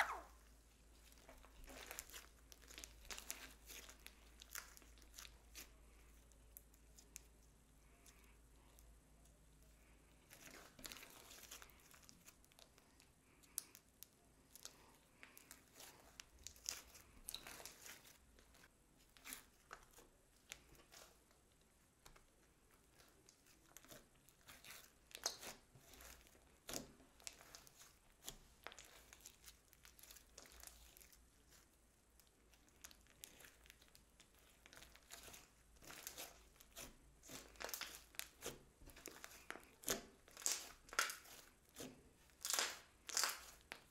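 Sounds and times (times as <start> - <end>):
slime sticky crackles and pops: 1.0 - 5.8, 19.1 - 43.9.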